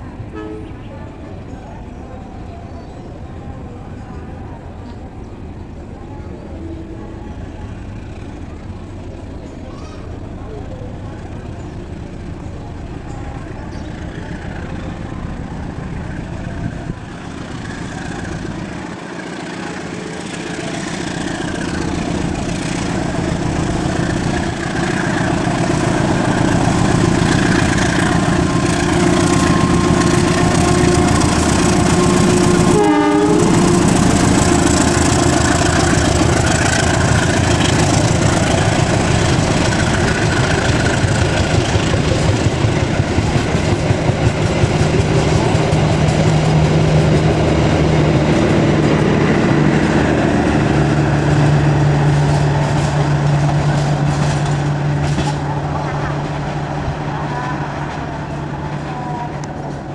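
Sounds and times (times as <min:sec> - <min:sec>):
diesel locomotive engine: 0:00.0 - 0:59.9.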